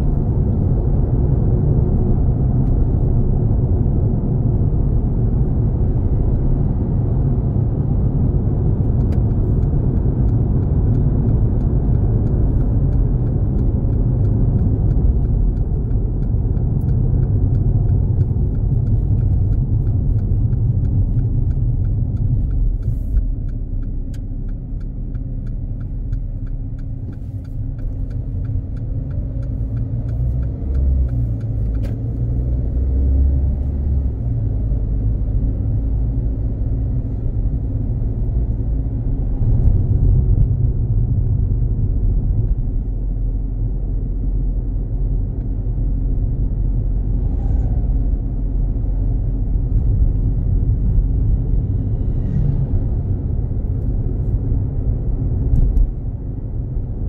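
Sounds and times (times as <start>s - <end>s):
tyres and engine rumble: 0.0s - 57.0s
turn indicator ticking: 8.6s - 46.9s, 48.4s - 51.8s.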